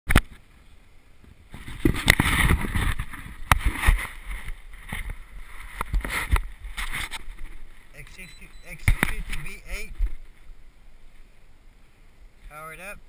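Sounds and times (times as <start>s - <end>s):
camera handling noise: 8.8s - 10.3s.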